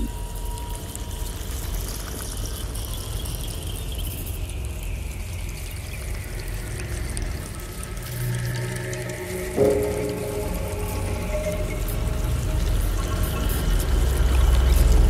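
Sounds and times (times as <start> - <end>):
water trickling: 0.4 - 15.0
faint high falling tone: 9.6 - 12.6.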